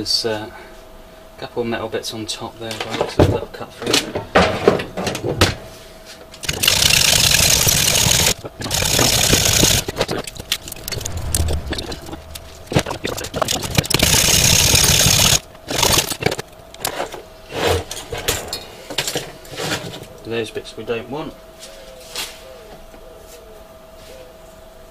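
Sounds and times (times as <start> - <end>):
hacksaw sawing copper: 6.4 - 10.2, 12.6 - 16.4.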